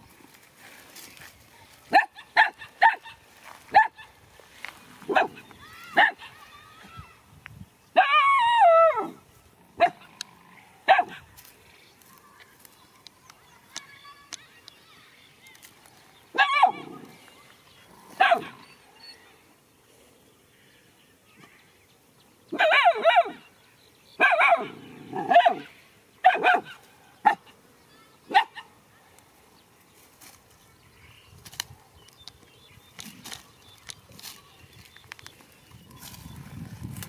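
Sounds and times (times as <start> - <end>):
dogs barking: 1.9 - 4.2, 5.1 - 6.4, 9.8 - 10.2, 10.8 - 11.2, 16.4 - 17.1, 18.1 - 18.7, 22.6 - 23.4, 24.2 - 27.6, 28.3 - 28.7.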